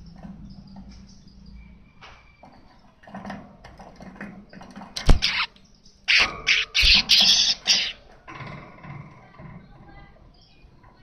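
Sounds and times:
bird chattering and singing: 0:04.5 - 0:08.1
harsh hissing bird song: 0:05.1 - 0:05.6, 0:06.2 - 0:08.0.

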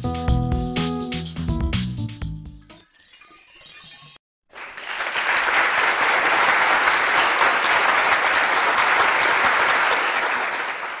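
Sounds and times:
crowd applauding: 0:04.5 - 0:11.0.

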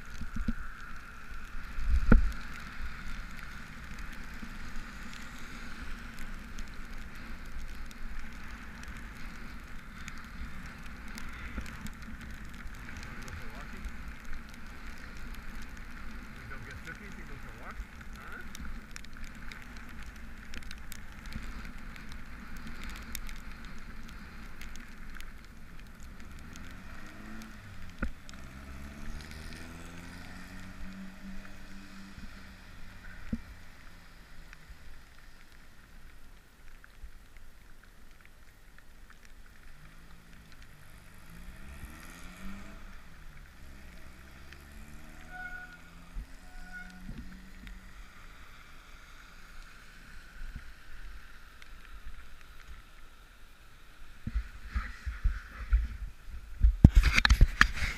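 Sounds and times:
tyres hissing on wet pavement: 0:00.0 - 0:57.9
wind on microphone: 0:54.2 - 0:57.9.

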